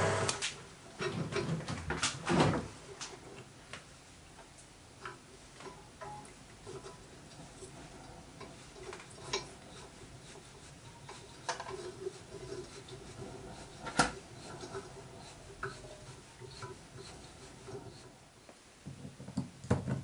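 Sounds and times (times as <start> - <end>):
hand tool scraping metal: 8.0 - 18.2.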